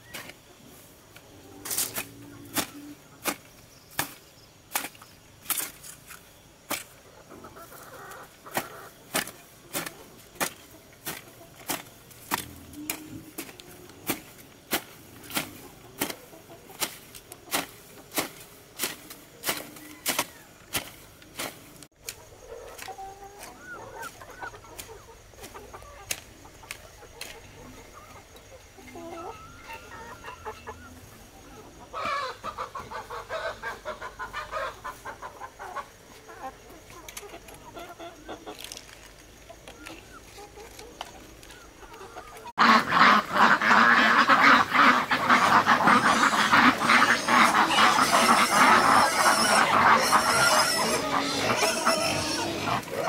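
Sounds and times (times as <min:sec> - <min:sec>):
hoe striking soil: 0:00.0 - 0:00.4, 0:01.6 - 0:07.0, 0:08.5 - 0:27.4
chickens clucking: 0:00.0 - 0:53.0.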